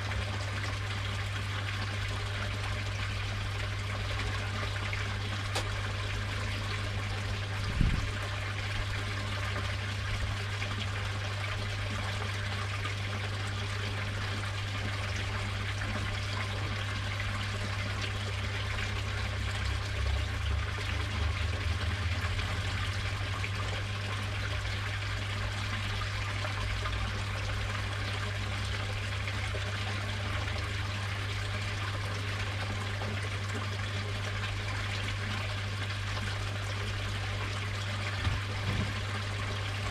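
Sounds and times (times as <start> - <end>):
water trickling in a pond: 0.0 - 39.9
brief thump: 38.2 - 39.0.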